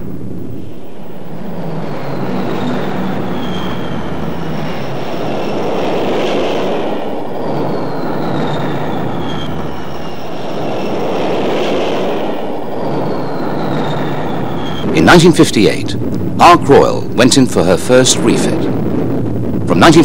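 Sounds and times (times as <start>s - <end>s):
jet engine roar with whine: 0.0s - 20.0s.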